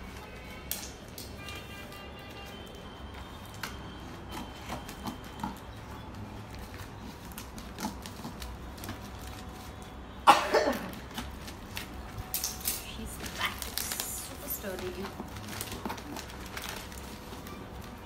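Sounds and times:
plastic packaging rustling: 0:00.0 - 0:18.0.

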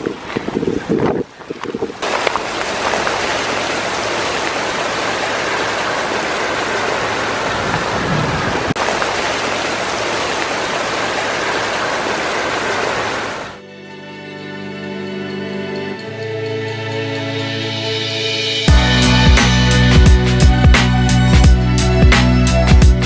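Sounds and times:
water rushing down ice channel: 0:00.0 - 0:13.6.

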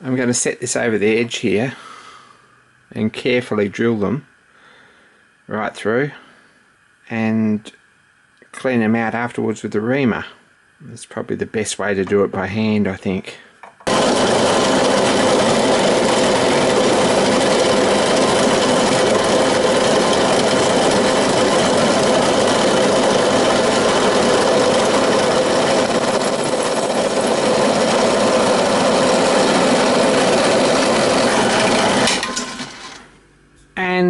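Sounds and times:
drill press drilling metal: 0:13.9 - 0:33.1.

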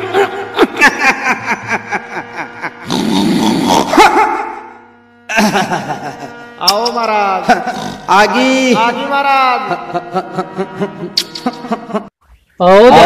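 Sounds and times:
man growling cry: 0:02.6 - 0:04.6, 0:07.5 - 0:08.1
sharp irregular beats: 0:06.6 - 0:09.1.

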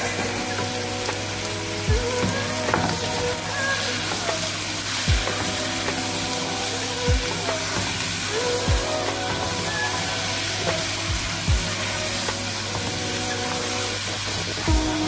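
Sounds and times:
chicken sizzling in hot oil: 0:00.0 - 0:15.0
background music with deep thumps: 0:05.1 - 0:06.1, 0:11.1 - 0:11.9, 0:14.6 - 0:15.0.

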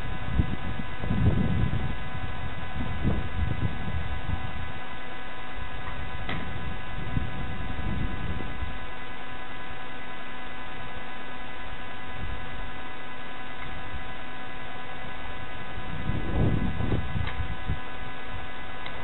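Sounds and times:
low rumbling noise: 0:00.0 - 0:09.2, 0:13.5 - 0:19.0
electrical hum: 0:00.0 - 0:19.0.

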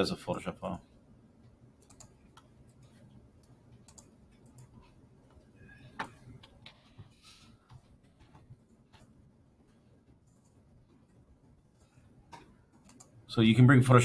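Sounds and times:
computer mouse and keyboard clicks: 0:01.8 - 0:09.2, 0:11.7 - 0:13.2.

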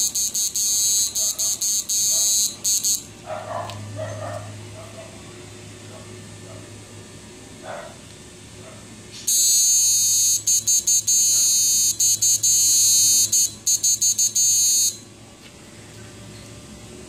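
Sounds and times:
high-pitched electronic whine: 0:00.0 - 0:03.1, 0:09.3 - 0:15.1.

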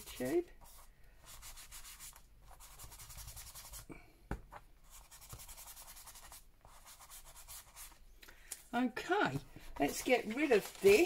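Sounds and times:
scratchy rubbing on paper: 0:00.0 - 0:03.9, 0:04.8 - 0:08.0, 0:09.7 - 0:11.0.

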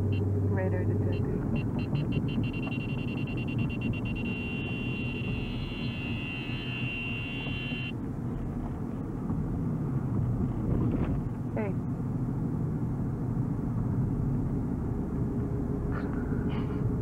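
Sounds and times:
road rumble inside car: 0:00.0 - 0:17.0
high-pitched pulsing tone: 0:01.0 - 0:07.9.

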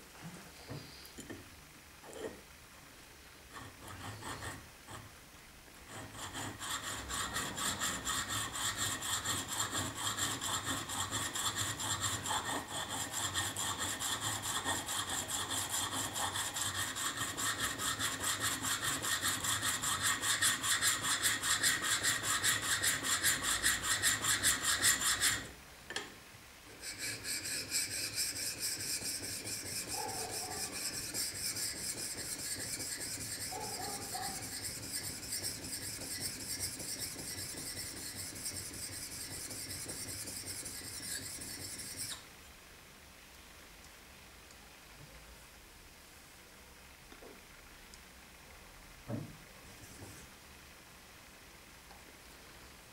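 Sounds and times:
blade scraping on sharpening stone: 0:06.3 - 0:25.5, 0:26.8 - 0:42.2
blade scraping on sharpening plate: 0:26.8 - 0:42.2.

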